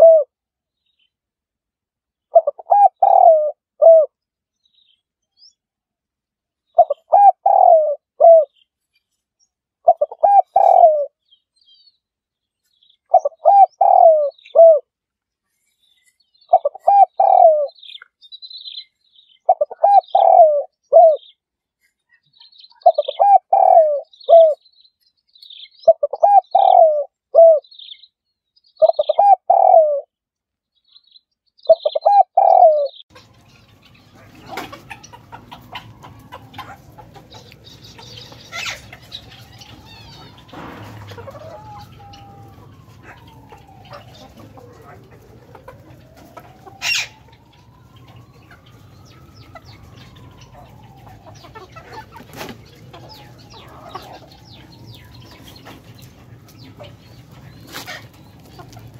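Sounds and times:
dove cooing: 0:00.0 - 0:00.3, 0:02.3 - 0:04.1, 0:06.8 - 0:08.5, 0:09.8 - 0:11.2, 0:13.1 - 0:14.9, 0:16.5 - 0:18.0, 0:19.5 - 0:21.3, 0:22.8 - 0:24.6, 0:25.8 - 0:27.7, 0:28.8 - 0:30.1, 0:31.7 - 0:33.0, 0:34.2 - 0:58.9
outdoor background noise: 0:00.0 - 0:58.9
small birds chirping: 0:02.2 - 0:05.8, 0:06.5 - 0:58.9.

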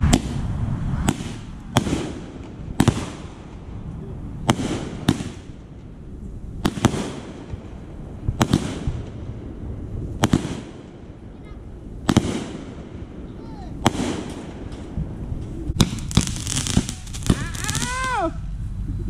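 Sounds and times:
fireworks bangs: 0:00.0 - 0:18.6
fireworks hiss: 0:13.7 - 0:18.8.

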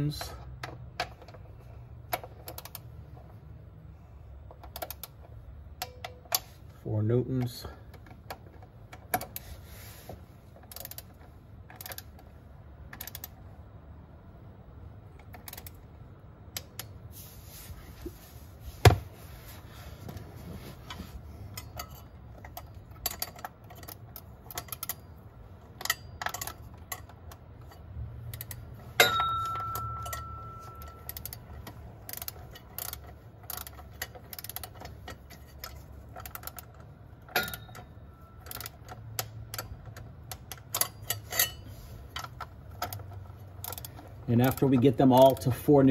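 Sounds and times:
ratchet wrench clicking: 0:02.1 - 0:03.0, 0:04.5 - 0:06.6, 0:10.6 - 0:12.3, 0:12.9 - 0:13.4, 0:15.2 - 0:15.8, 0:21.5 - 0:45.7
ringing metallic clank: 0:29.0 - 0:31.1, 0:37.3 - 0:38.5.

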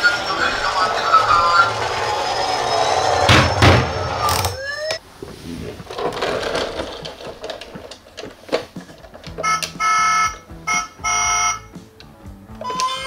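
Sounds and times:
toy siren wailing: 0:00.0 - 0:05.0, 0:09.4 - 0:11.7, 0:12.6 - 0:13.0
electronic beeps: 0:09.4 - 0:11.7.

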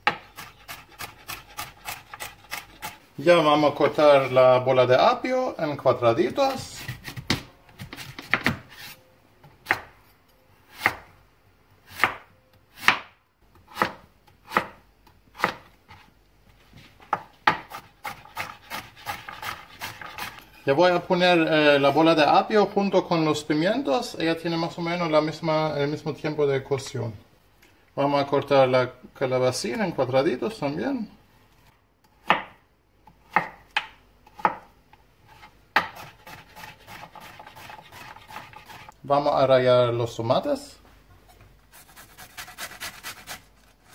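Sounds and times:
knife cutting vegetable: 0:00.0 - 0:03.0, 0:06.5 - 0:09.0, 0:17.5 - 0:20.4, 0:35.3 - 0:38.9, 0:41.7 - 0:43.9.

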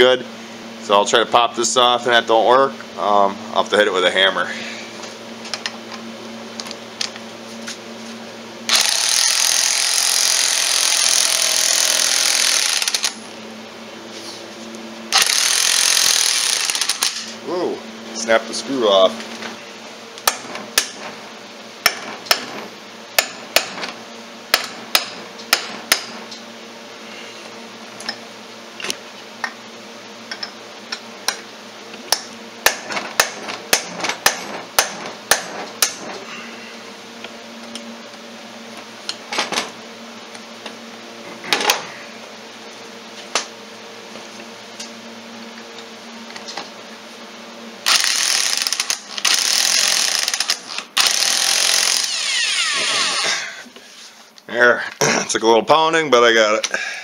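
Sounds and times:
electric impact wrench: 0:08.6 - 0:13.4, 0:15.1 - 0:17.4, 0:20.2 - 0:21.2, 0:21.8 - 0:26.2, 0:32.6 - 0:36.2, 0:47.8 - 0:53.6.

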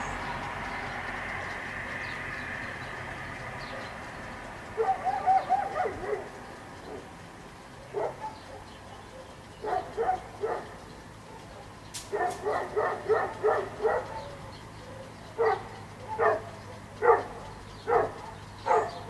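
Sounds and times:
dog yapping: 0:04.8 - 0:07.0, 0:07.9 - 0:19.0
sharp click: 0:11.9 - 0:12.5.

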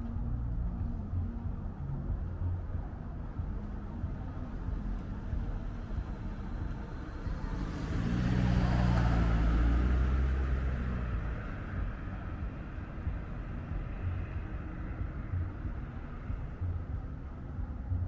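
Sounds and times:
distant traffic rumble: 0:00.0 - 0:18.0
car passing by: 0:05.0 - 0:16.8.

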